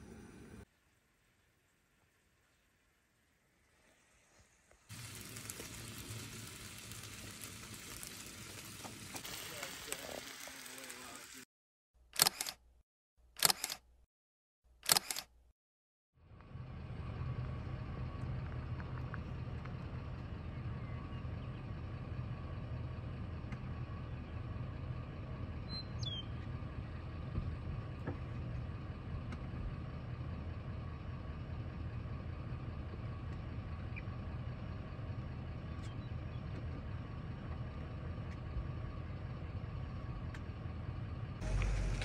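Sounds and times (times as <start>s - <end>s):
car engine running: 16.2s - 42.0s.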